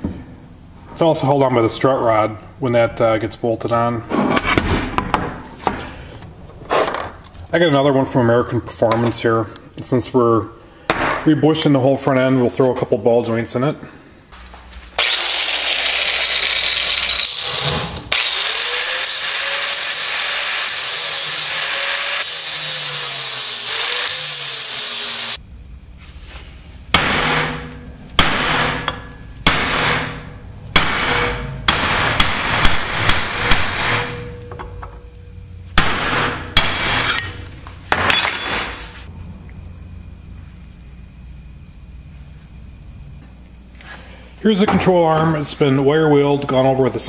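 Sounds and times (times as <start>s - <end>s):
power grinder grinding metal: 15.0s - 25.4s
hammer striking a punch: 26.9s - 34.6s, 35.8s - 38.3s.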